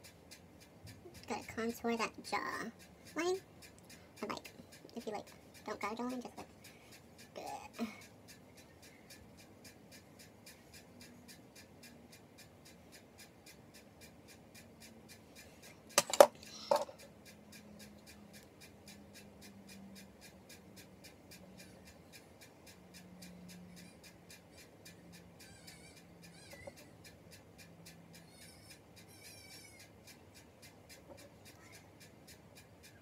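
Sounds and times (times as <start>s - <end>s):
faint ticking: 0.0s - 33.0s
plastic compact clacking: 16.0s - 16.9s.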